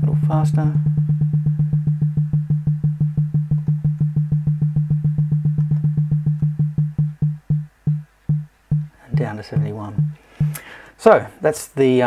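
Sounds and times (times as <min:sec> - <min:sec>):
synthesized percussive pulses: 0:00.0 - 0:10.6.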